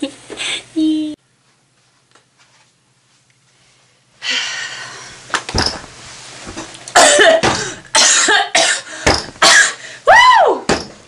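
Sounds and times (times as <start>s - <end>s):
person coughing: 6.9s - 9.8s.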